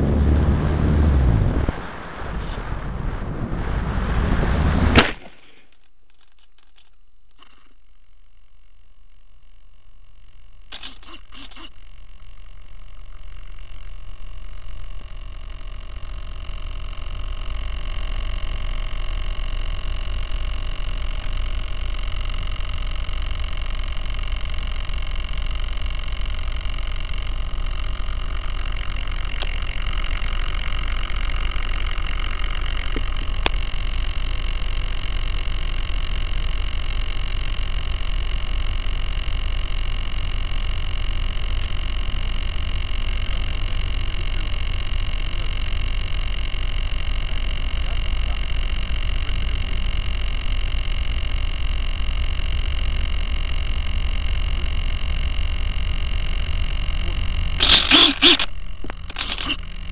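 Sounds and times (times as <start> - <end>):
wind rumbling on microphone: 0.0 - 5.0
steady high hum: 0.0 - 59.9
sharp click: 4.9 - 7.7, 10.7 - 11.7, 57.6 - 59.6.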